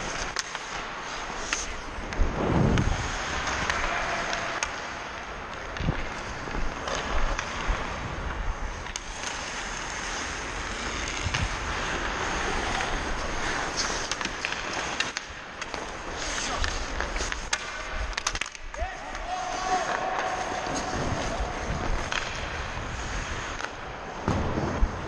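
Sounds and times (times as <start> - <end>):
ice skates scraping on ice: 0.0 - 25.0
wind on microphone: 2.2 - 3.4.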